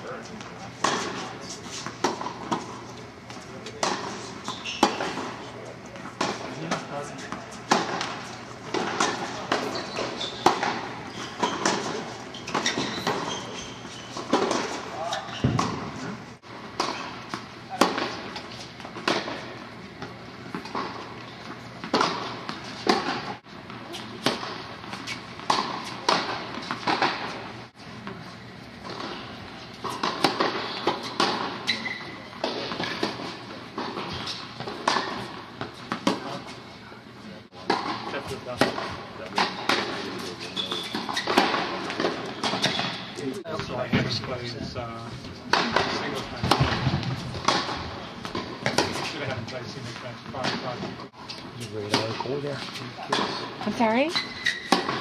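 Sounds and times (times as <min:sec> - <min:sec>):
shoe squeak: 0:04.1 - 0:05.2, 0:09.2 - 0:15.7, 0:30.6 - 0:33.0, 0:34.0 - 0:34.6, 0:39.4 - 0:41.6, 0:42.3 - 0:43.4, 0:53.8 - 0:55.0
racket striking tennis ball: 0:06.0 - 0:16.0, 0:16.7 - 0:21.0, 0:21.8 - 0:27.4, 0:29.8 - 0:36.4, 0:45.5 - 0:49.1, 0:54.4 - 0:55.0
tennis ball bouncing: 0:06.0 - 0:16.0, 0:16.8 - 0:27.4, 0:29.8 - 0:36.4, 0:45.5 - 0:49.1, 0:53.1 - 0:55.0.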